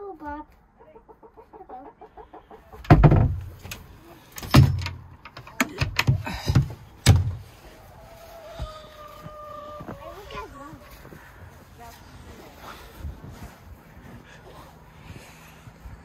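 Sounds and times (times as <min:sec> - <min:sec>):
chickens clucking: 0:00.3 - 0:04.4, 0:06.6 - 0:13.0
loud thumps: 0:02.9 - 0:03.7, 0:05.9 - 0:07.4.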